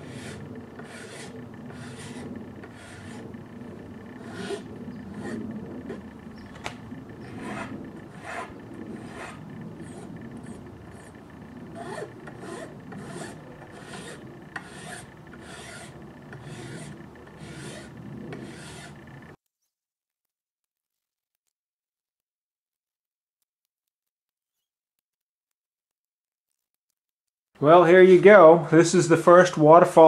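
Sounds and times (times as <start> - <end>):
hand file rasping: 0.0 - 19.2.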